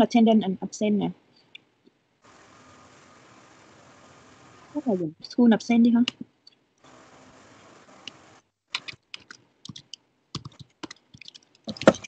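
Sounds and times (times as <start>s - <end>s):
faint steady hiss: 0.0s - 12.0s.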